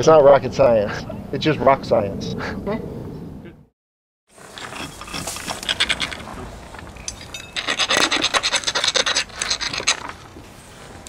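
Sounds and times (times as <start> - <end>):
rocks scraping and clattering: 4.3 - 11.0.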